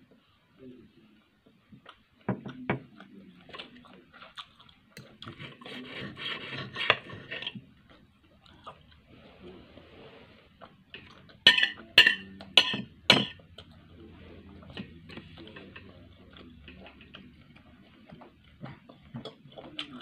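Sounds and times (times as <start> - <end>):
cutlery scraping: 5.2 - 7.6, 11.0 - 13.4
knife and fork clinking on plate: 11.5 - 13.4.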